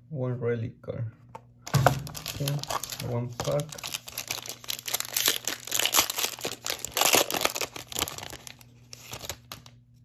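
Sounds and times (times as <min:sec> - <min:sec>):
foil wrapper tearing and crinkling: 0:01.8 - 0:09.8.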